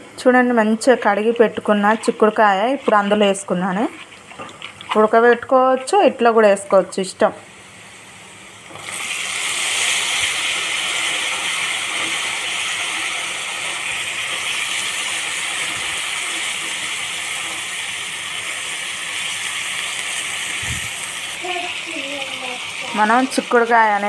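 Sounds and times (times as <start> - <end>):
beans sizzling in hot oil: 7.5 - 24.0.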